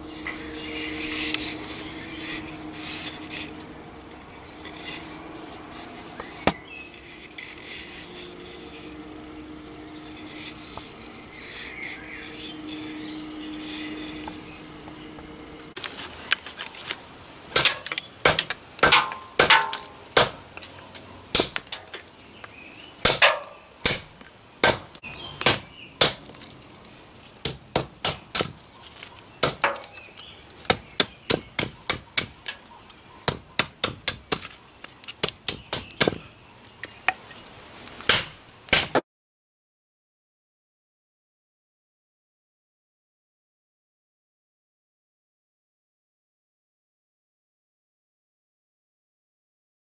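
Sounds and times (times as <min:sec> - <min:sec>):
hatchet chopping kindling on wood: 0:06.4 - 0:06.7, 0:17.5 - 0:20.7, 0:21.3 - 0:22.0, 0:23.0 - 0:26.4, 0:27.4 - 0:28.6, 0:29.4 - 0:36.3, 0:38.0 - 0:39.0.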